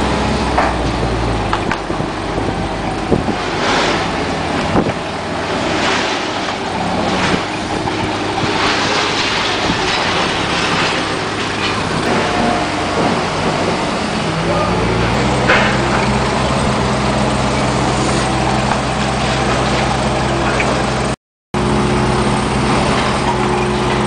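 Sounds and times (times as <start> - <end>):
forklift engine running: 0.0 - 24.0.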